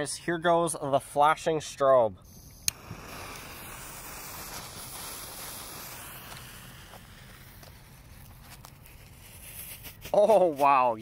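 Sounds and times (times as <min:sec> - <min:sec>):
firework fuse hissing: 0:02.2 - 0:10.6.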